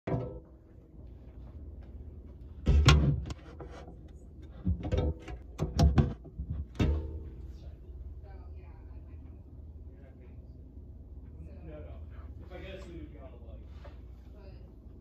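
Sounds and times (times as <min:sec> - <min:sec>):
faint low hum: 0:00.1 - 0:15.0.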